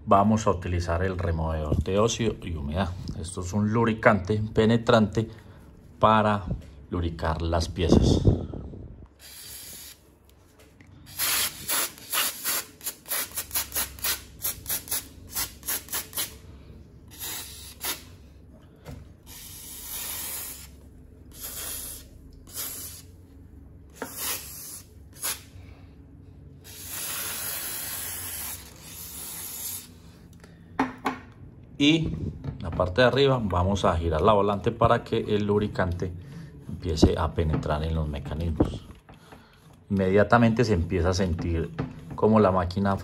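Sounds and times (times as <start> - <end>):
aerosol can spraying: 9.2 - 10.0, 11.1 - 16.4, 17.1 - 18.1, 19.3 - 23.1, 24.0 - 25.5, 26.6 - 29.9.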